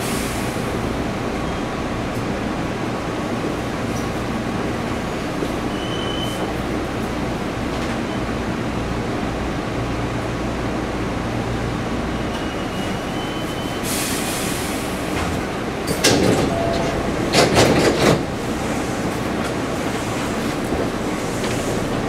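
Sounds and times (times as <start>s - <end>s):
train low hum: 0.0s - 22.0s
sharp knocks and clatters: 15.9s - 18.3s.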